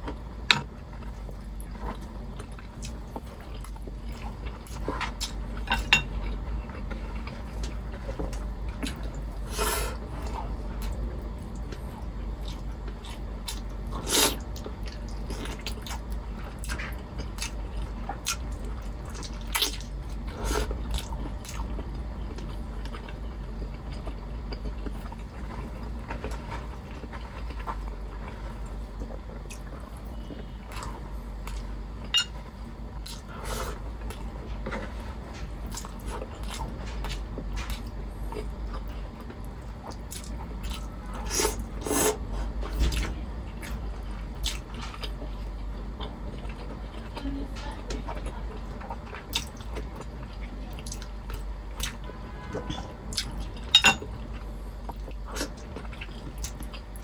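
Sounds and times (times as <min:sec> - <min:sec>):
steady low hum: 0:00.0 - 0:57.0
wet chewing and lip-smacking: 0:48.8 - 0:52.0.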